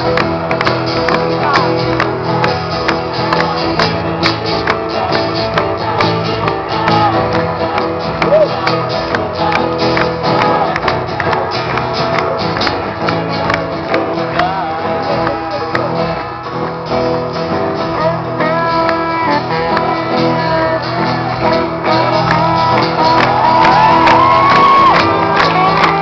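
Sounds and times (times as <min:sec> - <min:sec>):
strummed acoustic guitars: 0:00.0 - 0:26.0
voices shouting and singing: 0:01.2 - 0:11.5.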